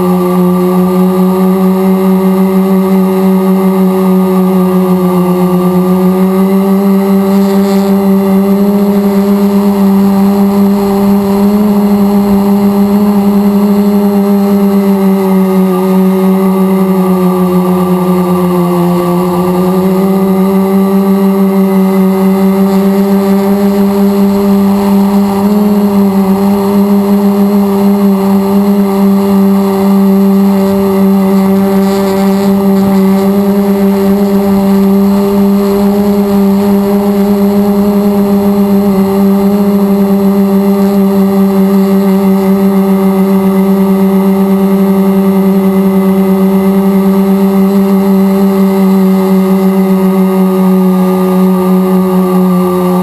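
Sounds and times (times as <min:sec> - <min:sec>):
drone motors humming: 0:00.0 - 0:53.0.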